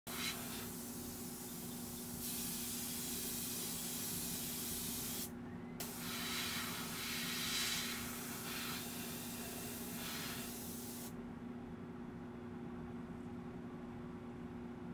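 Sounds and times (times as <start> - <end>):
airbrush spraying hiss: 0.1 - 11.1.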